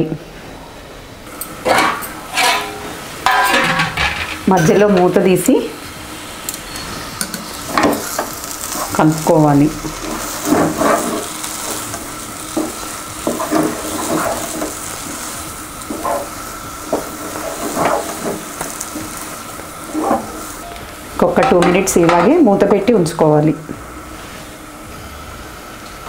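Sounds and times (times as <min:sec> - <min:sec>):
soft sizzle: 0:00.0 - 0:26.0
spatula scraping pan: 0:01.7 - 0:05.1, 0:09.9 - 0:20.6.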